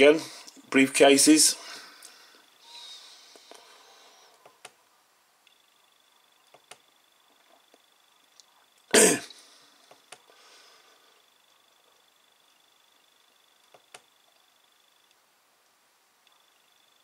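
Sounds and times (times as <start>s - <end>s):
faint high whine: 0.0s - 17.0s
man coughing: 8.9s - 9.4s.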